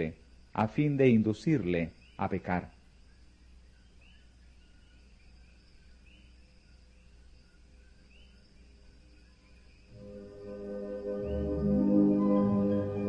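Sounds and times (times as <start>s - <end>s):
faint background hum: 0.0s - 10.2s
soft ambient music: 7.4s - 13.0s
high rising chirps: 9.9s - 13.0s.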